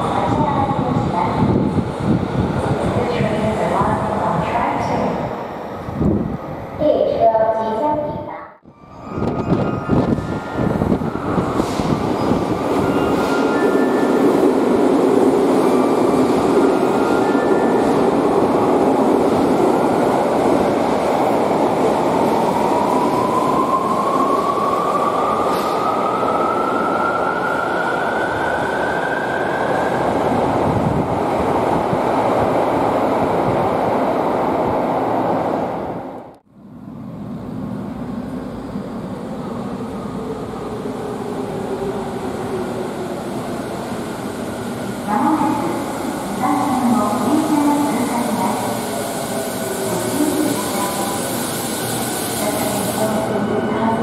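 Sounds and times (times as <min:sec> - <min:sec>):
train slowing to stop: 0:08.7 - 0:30.8, 0:36.6 - 0:53.7.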